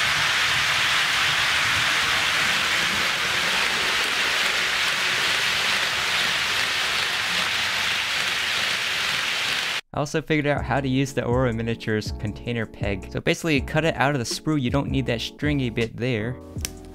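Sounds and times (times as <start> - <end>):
model train wheels rushing on rails: 0.0 - 9.8.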